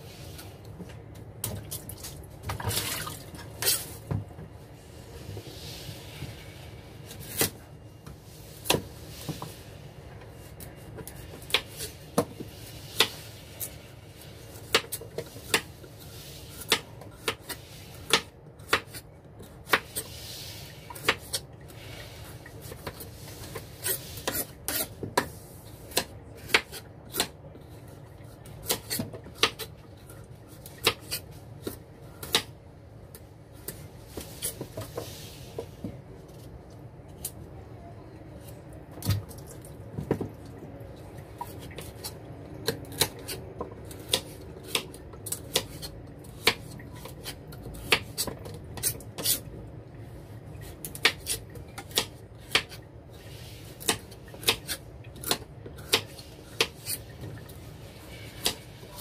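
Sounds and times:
knife scraping: 22.6s - 25.4s, 45.4s - 49.5s, 51.0s - 57.1s.

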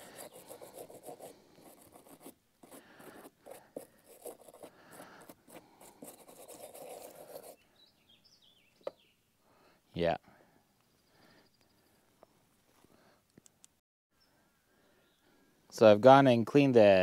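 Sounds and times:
brush scratching on metal: 0.0s - 7.6s.

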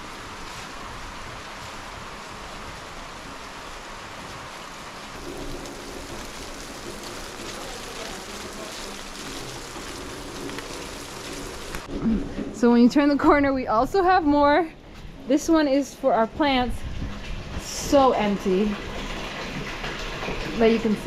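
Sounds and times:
steady rain: 0.0s - 12.7s.

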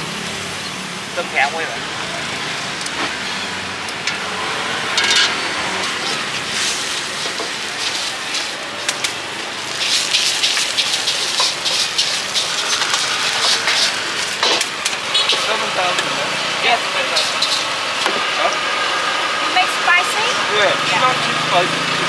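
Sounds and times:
wok sizzling: 0.0s - 22.0s
spatula scraping metal wok: 4.9s - 15.5s, 17.0s - 17.8s.

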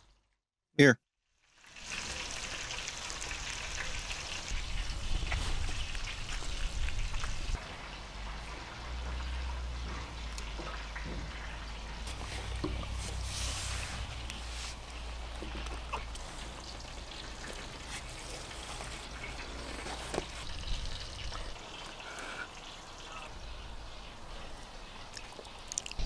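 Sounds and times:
chewing: 14.2s - 20.6s, 24.4s - 26.0s.

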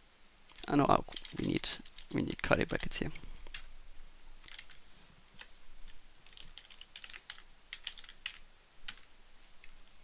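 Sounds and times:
keyboard typing: 0.5s - 3.7s, 4.4s - 4.8s, 6.2s - 9.1s.

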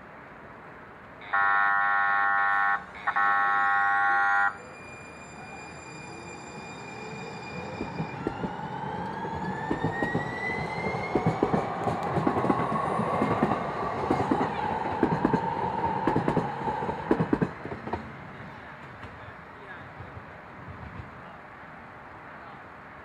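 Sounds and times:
train whine rising in pitch: 1.3s - 17.1s
train wheels clicking on track: 7.6s - 19.4s.

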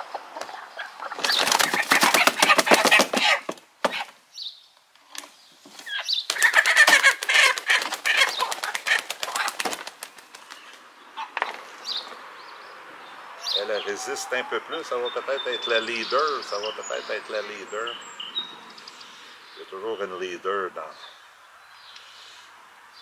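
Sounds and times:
hen flapping wings: 1.2s - 3.4s, 6.2s - 10.9s.

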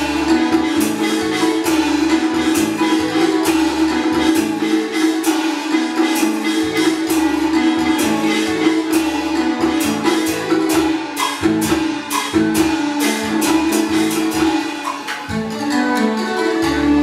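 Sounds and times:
sharp percussion strokes: 0.0s - 17.0s
string and wind melody: 13.0s - 17.0s.

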